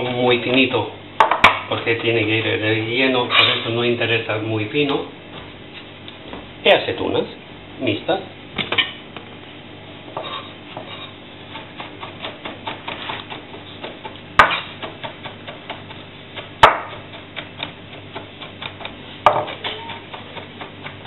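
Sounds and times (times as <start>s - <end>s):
knife chopping on cutting board: 10.1s - 21.0s.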